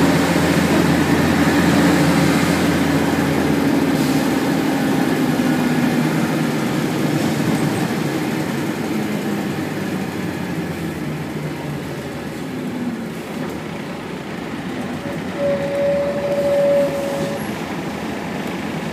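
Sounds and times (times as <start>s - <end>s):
bus diesel engine running: 0.0s - 18.9s
steady single-pitched squeal: 15.1s - 17.6s.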